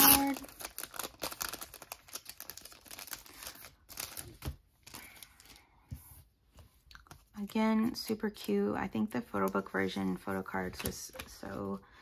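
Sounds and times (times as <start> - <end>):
plastic sleeve crinkling: 0.0 - 5.6.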